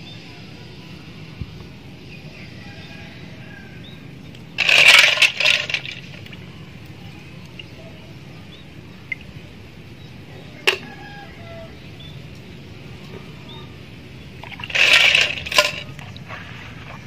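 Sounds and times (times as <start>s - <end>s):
steady low background noise: 0.0s - 17.0s
snail shell scraping metal fork: 14.4s - 16.0s.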